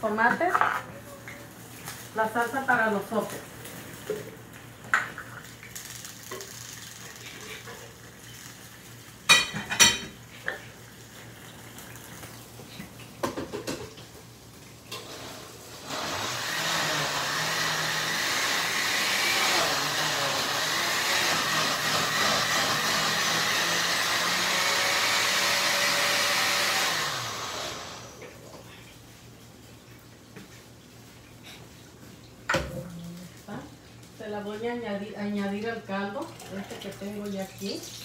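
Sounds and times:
electric blender running: 15.0 - 28.4.

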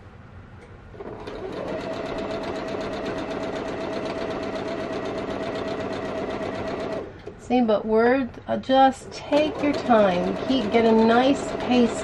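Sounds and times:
sewing machine running fast: 1.0 - 7.1, 9.3 - 12.0.

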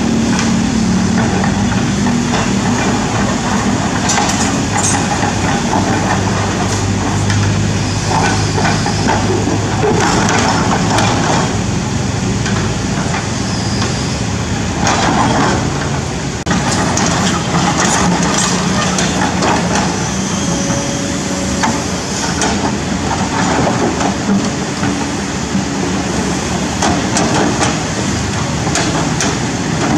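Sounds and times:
excavator diesel engine: 0.0 - 29.9
river water rushing: 14.2 - 29.9.

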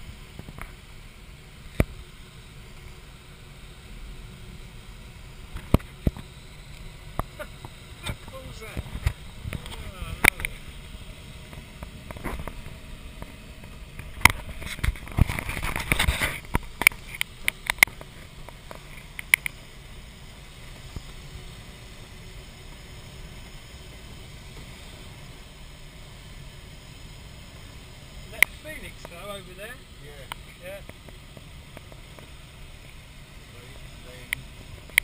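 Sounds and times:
sharp clicks and knocks: 11.5 - 19.6.

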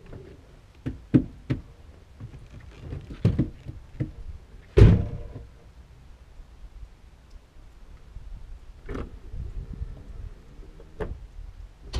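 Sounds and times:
knocks: 3.1 - 4.2.

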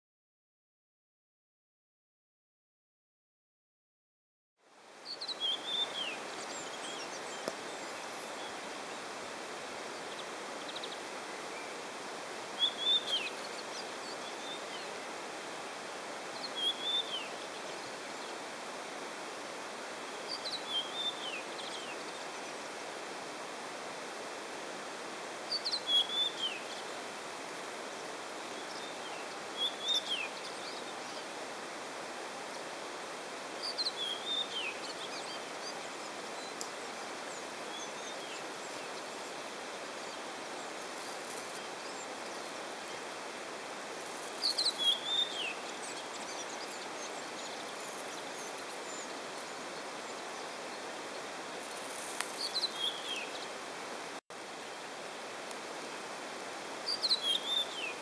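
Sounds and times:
steady background hiss: 4.6 - 58.0
songbird singing: 5.0 - 15.2, 16.3 - 18.6, 20.0 - 22.8, 25.5 - 27.1, 27.8 - 31.4, 33.5 - 43.2, 43.8 - 53.7, 56.7 - 58.0.

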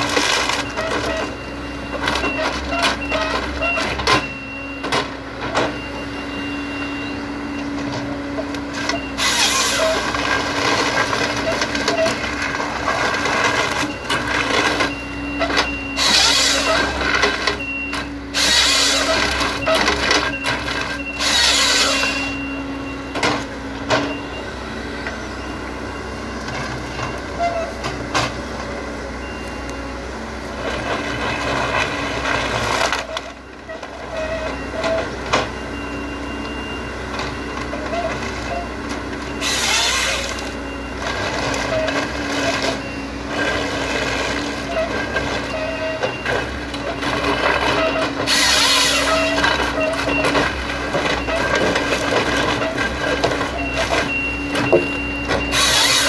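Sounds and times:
excavator diesel engine running: 0.0 - 56.0
hydraulic whine: 8.7 - 12.9, 13.6 - 25.5, 39.2 - 40.7, 41.4 - 50.3, 53.6 - 56.0.

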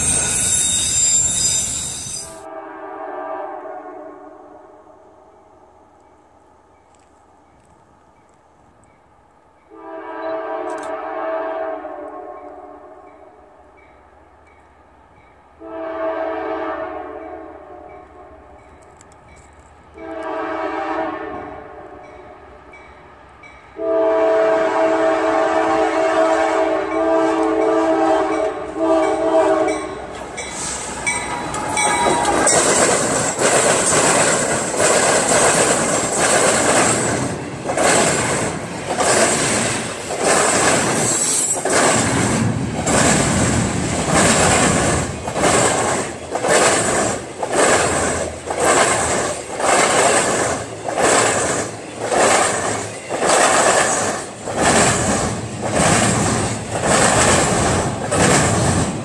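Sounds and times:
train cars rushing clatter: 0.0 - 2.5, 26.0 - 59.0
locomotive air horn: 0.0 - 5.3, 9.7 - 13.1, 15.6 - 18.6, 20.0 - 22.1, 23.8 - 30.1.

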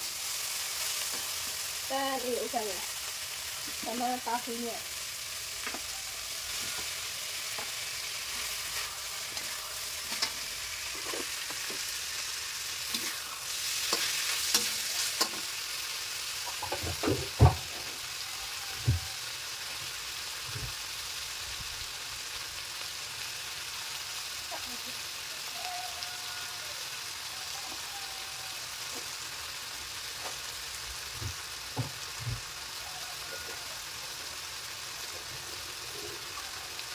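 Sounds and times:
food sizzling in a wok: 0.0 - 36.9
metal spatula scraping wok: 6.3 - 16.8.

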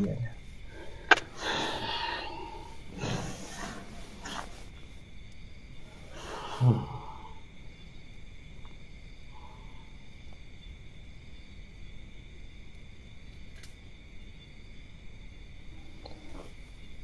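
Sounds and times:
night insects droning: 0.0 - 17.0
man exhaling: 6.1 - 7.4.

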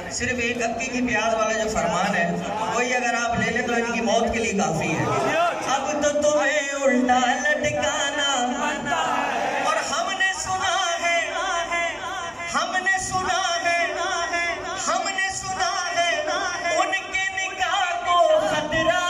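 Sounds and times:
man singing into a microphone: 5.6 - 8.9, 9.7 - 19.0.

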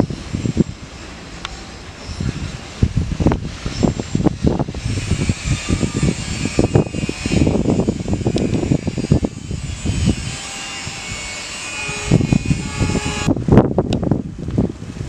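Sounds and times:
freight train rumble: 0.0 - 15.0
wind buffeting microphone: 0.0 - 15.0.

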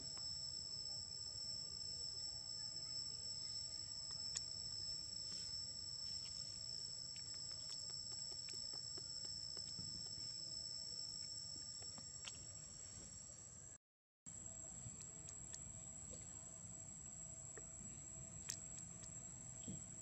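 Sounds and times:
high-pitched insect chorus: 0.0 - 20.0
faint ticks: 3.5 - 13.1, 14.9 - 16.4, 17.5 - 20.0.

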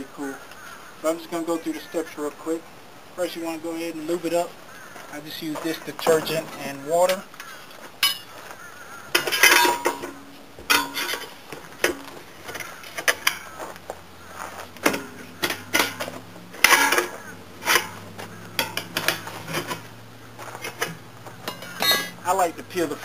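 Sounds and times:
low steady hum: 0.0 - 23.0
tire irons clanking on metal: 5.5 - 8.4, 9.1 - 23.0.

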